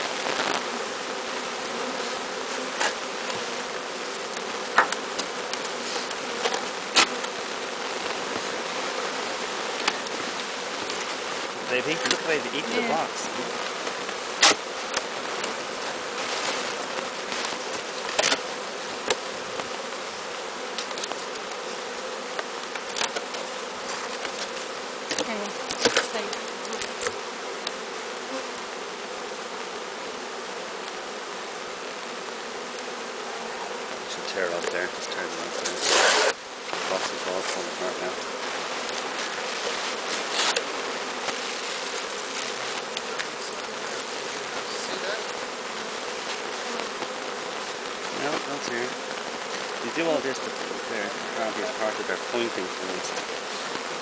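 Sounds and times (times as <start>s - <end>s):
bees buzzing: 0.0s - 54.0s.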